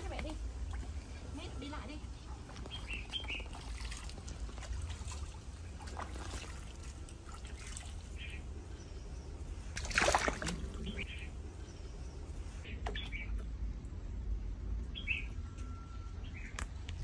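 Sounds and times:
fish splashing in water: 2.7s - 8.2s, 9.7s - 11.0s.

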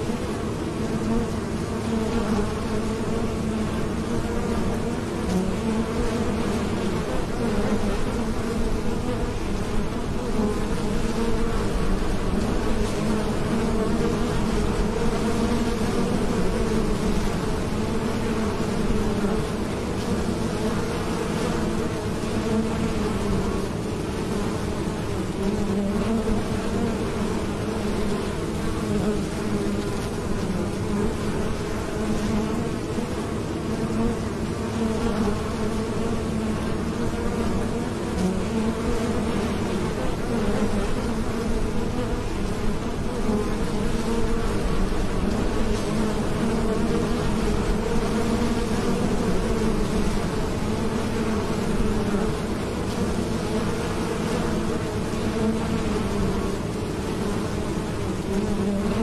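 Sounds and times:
bees buzzing: 0.0s - 59.0s.

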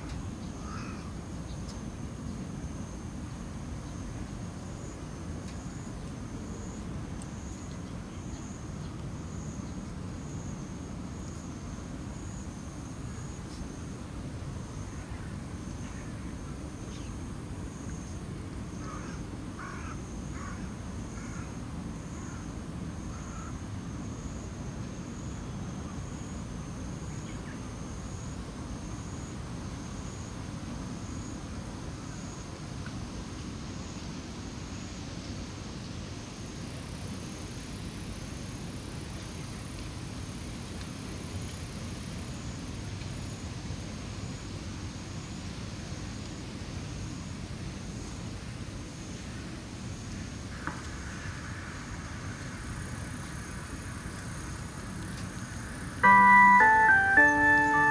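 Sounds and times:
crow cawing: 0.6s - 1.1s, 18.8s - 21.4s
high pulsing chirp: 56.0s - 57.9s.

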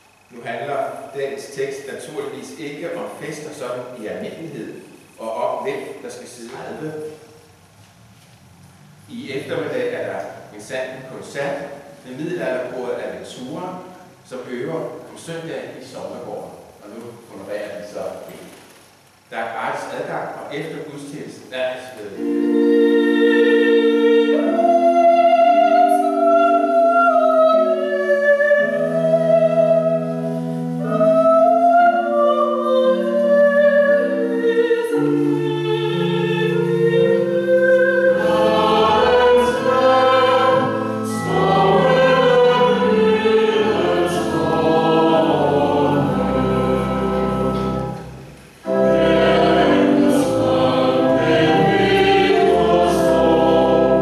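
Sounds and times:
voices singing a hymn in harmony: 21.5s - 54.0s.

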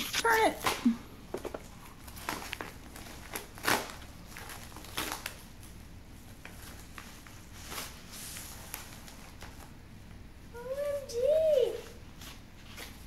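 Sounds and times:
paper mailer rustling and tearing: 1.7s - 9.8s.

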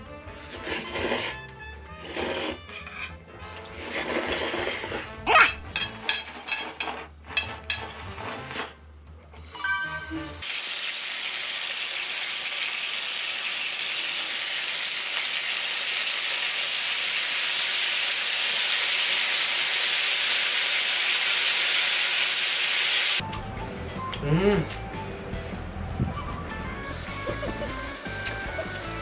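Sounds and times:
skewers sizzling on griddle: 0.3s - 5.1s, 10.4s - 23.3s, 26.7s - 29.0s.

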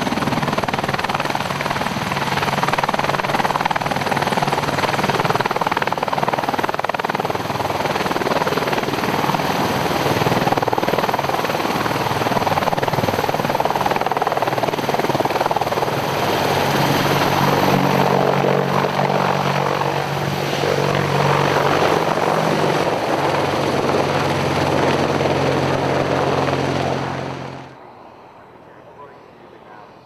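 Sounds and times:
helicopter rotor noise: 0.0s - 30.0s
high turbine engine whine: 0.0s - 30.0s.

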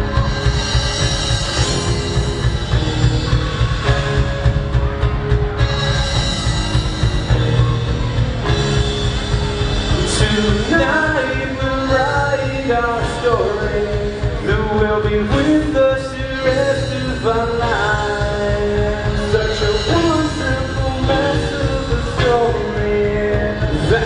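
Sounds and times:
drum kit: 0.0s - 24.0s
electric guitars: 0.0s - 24.0s
person singing: 7.4s - 24.0s.

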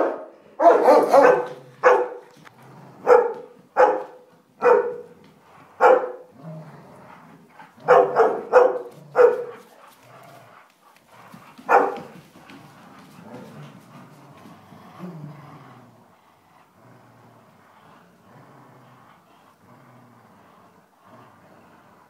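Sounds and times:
dog barking: 0.0s - 2.2s, 3.0s - 5.1s, 5.8s - 6.3s, 7.8s - 9.6s, 11.7s - 12.1s.

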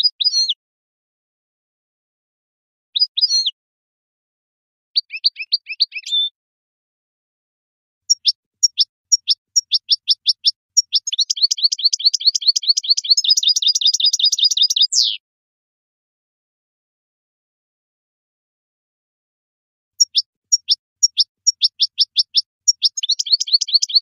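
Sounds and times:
goldfinch singing: 5.0s - 6.3s, 8.1s - 15.2s, 20.0s - 24.0s.

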